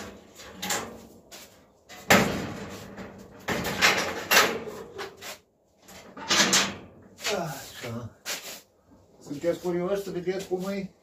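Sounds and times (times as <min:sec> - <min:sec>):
knocks and clatters: 0:01.9 - 0:07.0.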